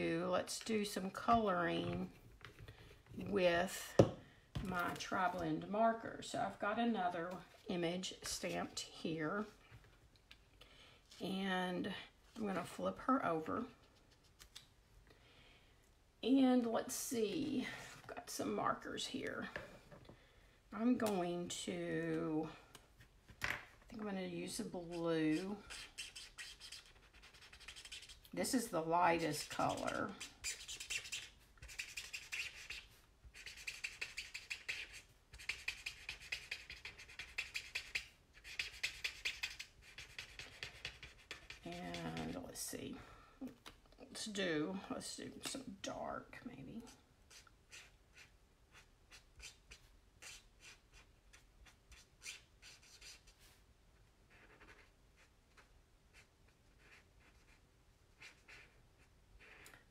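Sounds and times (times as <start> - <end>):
marker rubbing on paper: 24.8 - 28.2, 29.2 - 42.4, 47.3 - 53.6, 54.3 - 58.8, 59.4 - 59.6.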